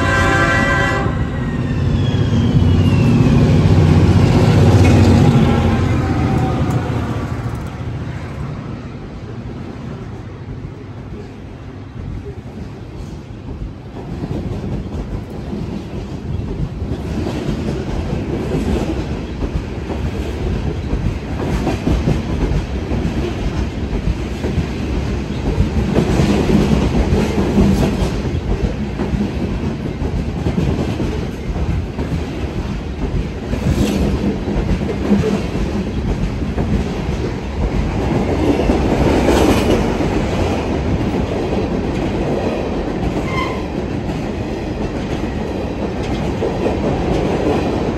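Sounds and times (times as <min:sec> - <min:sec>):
freight cars rattling on rails: 0:02.4 - 0:08.5.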